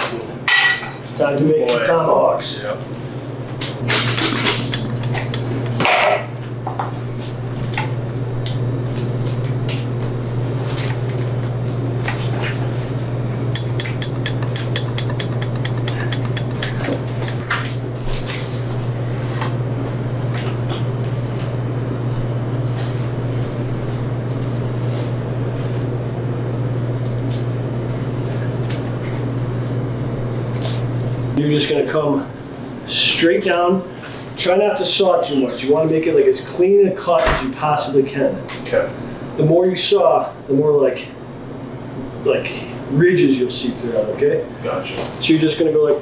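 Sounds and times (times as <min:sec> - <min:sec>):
steady low hum: 0:00.0 - 0:46.0
knife scraping against bones: 0:03.8 - 0:05.4, 0:13.4 - 0:18.5.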